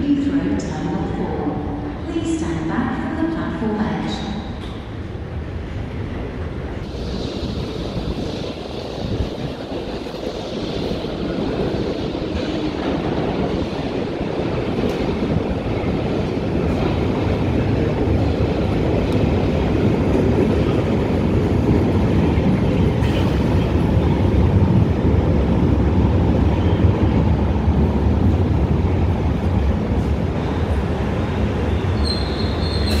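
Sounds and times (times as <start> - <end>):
train rumbling into station: 0.0 - 33.0.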